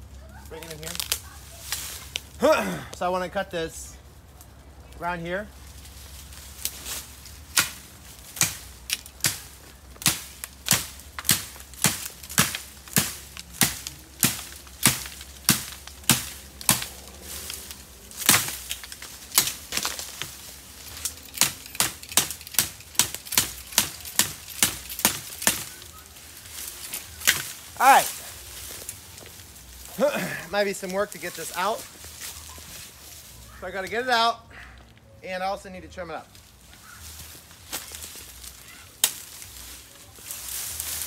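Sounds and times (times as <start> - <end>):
blade chopping bamboo: 7.5 - 26.0, 26.6 - 27.7.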